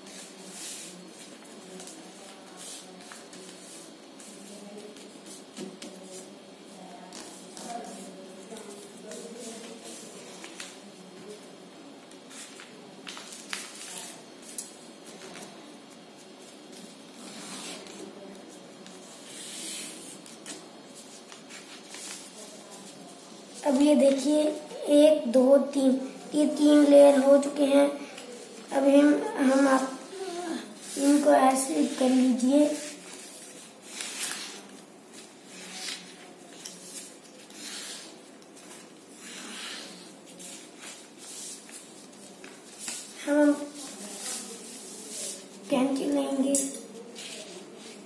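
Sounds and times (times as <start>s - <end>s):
paper rustling and folding: 12.1s - 24.6s, 30.8s - 45.8s.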